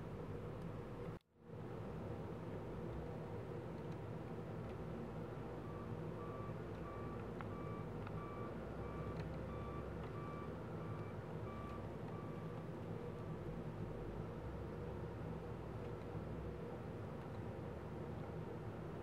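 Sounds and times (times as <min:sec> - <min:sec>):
backup alarm beeping: 0:05.7 - 0:12.5.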